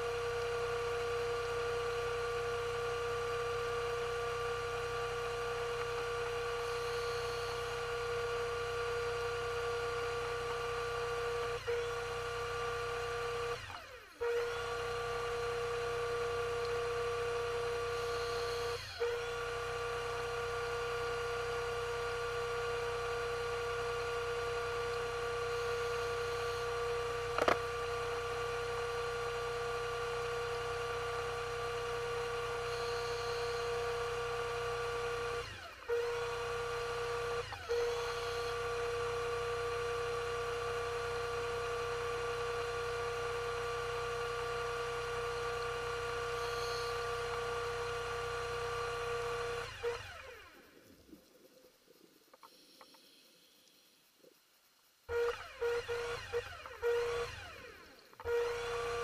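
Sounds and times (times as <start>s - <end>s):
underwater electric motor hum: 0.0s - 51.2s, 54.3s - 59.0s
sharp click: 27.3s - 27.6s.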